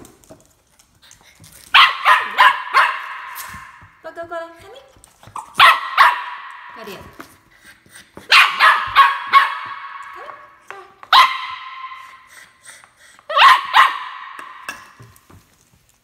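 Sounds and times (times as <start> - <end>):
dog barking sharply: 1.8 - 3.7, 5.6 - 6.6, 8.3 - 9.9, 13.4 - 14.4.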